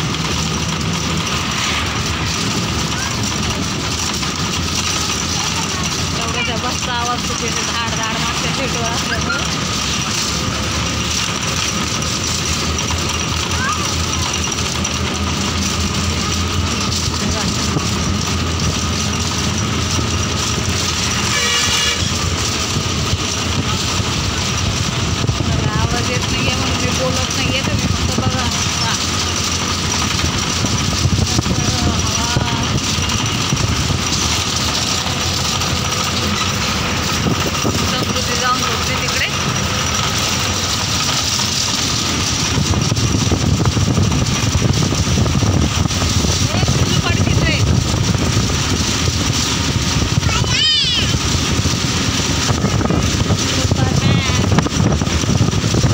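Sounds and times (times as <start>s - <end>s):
engine and road rumble: 0.0s - 55.9s
knocks and rattles: 0.0s - 55.9s
vehicle horn toot: 21.1s - 22.3s.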